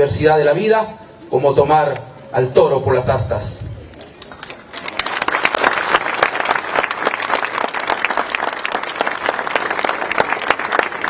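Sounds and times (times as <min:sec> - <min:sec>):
crowd applauding: 0:04.0 - 0:11.0.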